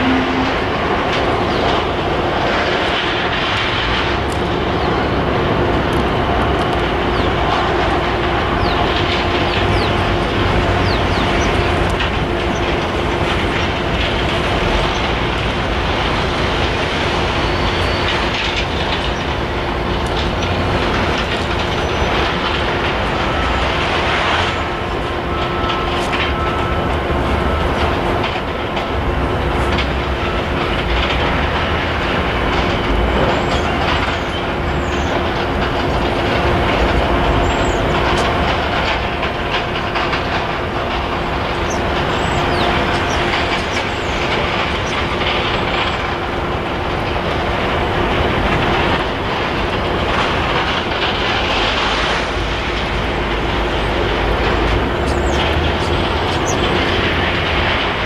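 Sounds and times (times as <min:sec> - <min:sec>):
train rolling past: 0:00.0 - 0:58.0
wheels clicking on rails: 0:00.0 - 0:58.0
high wheel squeals: 0:17.3 - 0:18.3.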